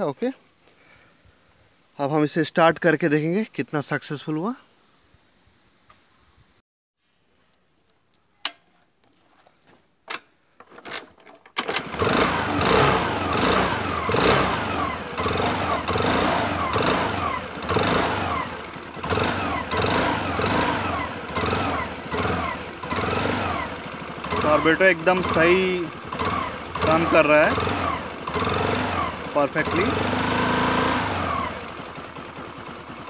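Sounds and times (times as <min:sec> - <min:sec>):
scooter engine running: 0:11.6 - 0:33.0.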